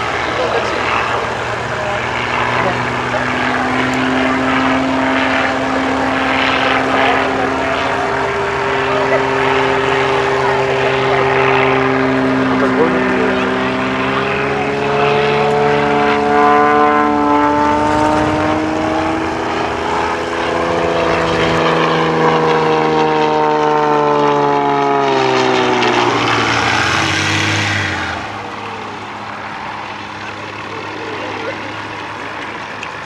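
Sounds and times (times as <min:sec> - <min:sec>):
propeller plane engine drone: 0:00.0 - 0:33.0
rushing swell: 0:17.3 - 0:20.4.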